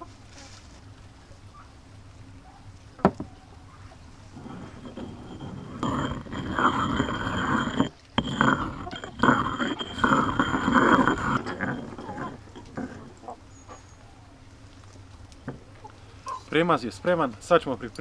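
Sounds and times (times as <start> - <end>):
stone mortar scraping: 4.3 - 13.4.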